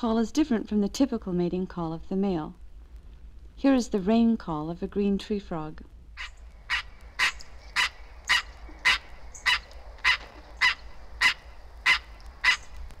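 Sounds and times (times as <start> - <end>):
treefrog calling: 6.2 - 12.8.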